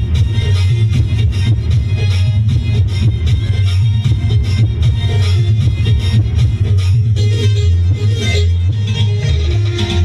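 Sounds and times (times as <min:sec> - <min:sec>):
dance music with heavy bass beat: 0:00.0 - 0:10.0.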